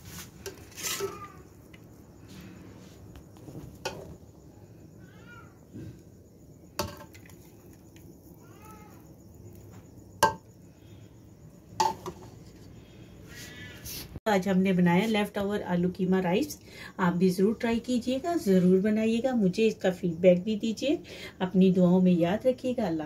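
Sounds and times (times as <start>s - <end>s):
metal spoon knocking on plate: 10.2s - 10.5s.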